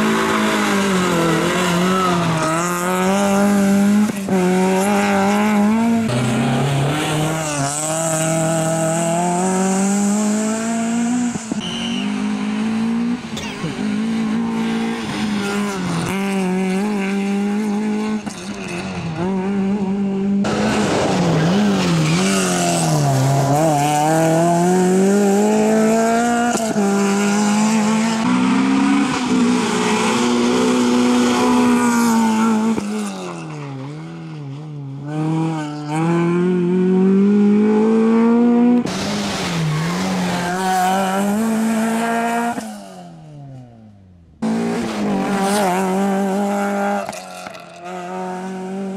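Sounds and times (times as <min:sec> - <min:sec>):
rally car engine revving: 0:00.0 - 0:43.8, 0:44.4 - 0:48.9
tyre squeal: 0:11.5 - 0:12.3.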